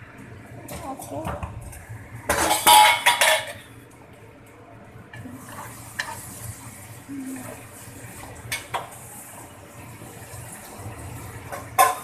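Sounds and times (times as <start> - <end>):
broth simmering hiss: 0.0 - 12.0.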